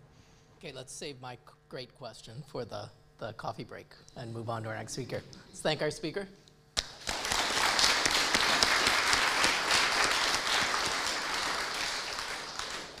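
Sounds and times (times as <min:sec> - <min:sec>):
audience applauding: 0:06.8 - 0:13.0.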